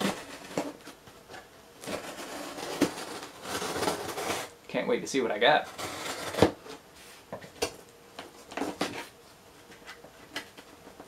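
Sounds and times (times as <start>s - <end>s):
knife slicing packing tape: 1.8s - 4.5s.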